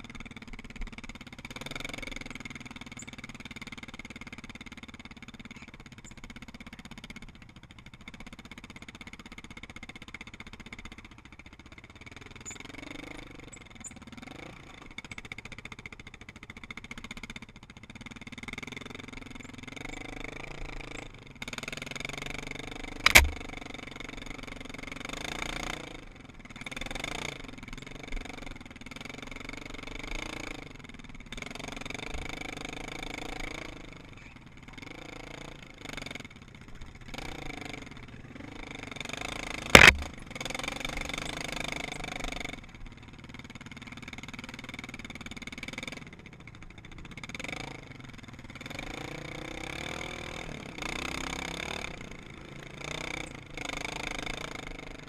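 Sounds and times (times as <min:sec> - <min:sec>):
atv engine revving: 0:00.0 - 0:05.6, 0:06.2 - 0:55.0
loud sharp knock: 0:23.1 - 0:23.4, 0:39.8 - 0:40.2.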